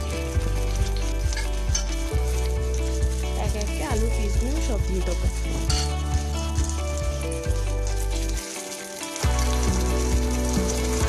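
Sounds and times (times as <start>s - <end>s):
background music: 0.0s - 11.0s
potatoes sizzling in pan: 0.0s - 11.0s.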